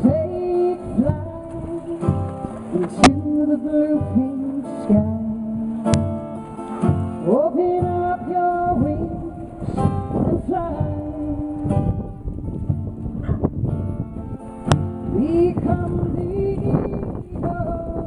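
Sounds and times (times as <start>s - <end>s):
woman singing: 0.0s - 6.1s, 7.2s - 12.2s, 15.1s - 18.0s
acoustic guitar strumming: 0.0s - 18.0s.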